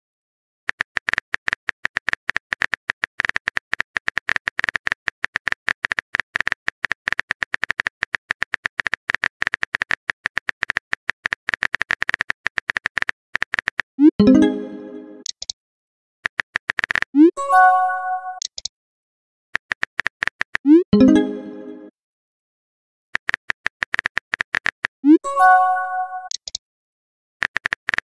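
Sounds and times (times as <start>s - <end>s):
phone keyboard typing clicks: 0.7s - 13.9s, 18.4s - 18.7s, 26.2s - 26.6s, 27.4s - 28.0s.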